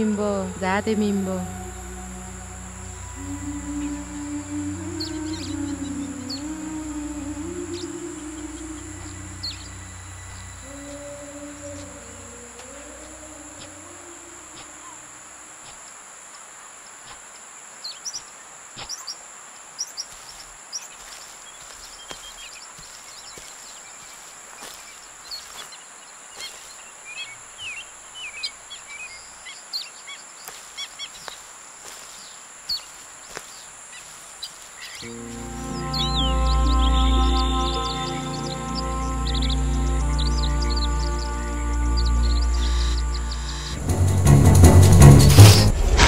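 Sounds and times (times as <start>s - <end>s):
bird chirps: 0.0s - 15.0s, 33.5s - 44.0s
even hiss: 0.0s - 20.8s, 30.5s - 46.0s
insect drone: 0.0s - 46.0s.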